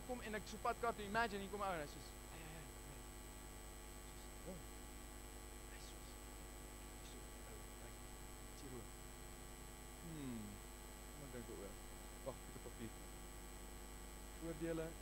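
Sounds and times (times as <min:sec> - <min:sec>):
electrical mains hum: 0:00.0 - 0:15.0
faint male vocal sound: 0:10.0 - 0:10.6.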